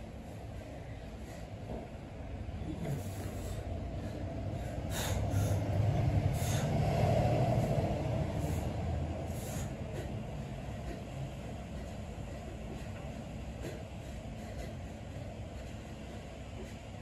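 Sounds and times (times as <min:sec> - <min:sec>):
person breathing sharply: 0:02.8 - 0:11.0.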